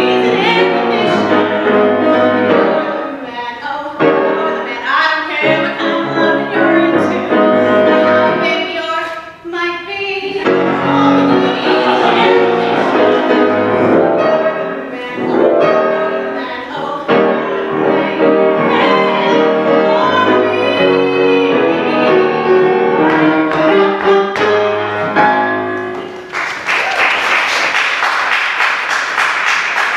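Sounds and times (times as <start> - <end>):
woman singing: 0.0 - 22.6
grand piano: 0.0 - 29.9
audience applause: 26.1 - 29.9.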